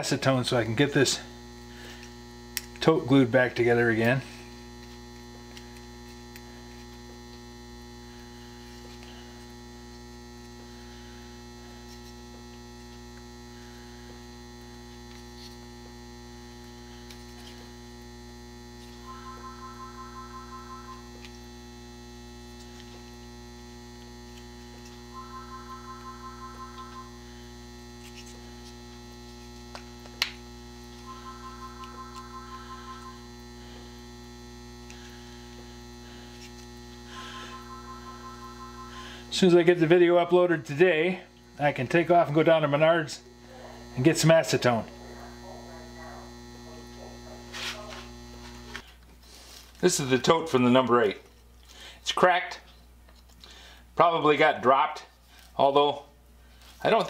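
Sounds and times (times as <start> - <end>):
electrical mains hum: 0.0 - 57.0
two-tone beeps: 37.2 - 39.2.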